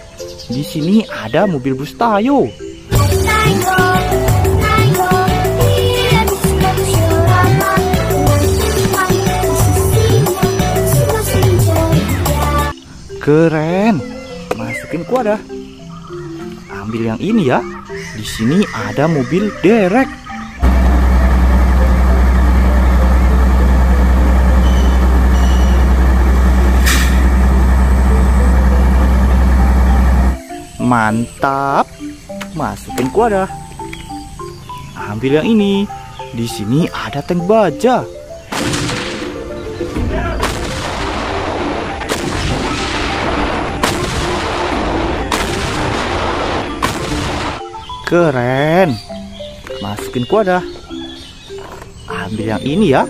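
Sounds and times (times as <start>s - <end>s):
diesel truck engine idling: 3.0s - 12.7s, 20.6s - 30.4s
howitzer shots with rumbling echo: 20.6s - 30.4s, 38.5s - 39.3s, 40.4s - 47.6s
air hiss: 26.8s - 27.3s.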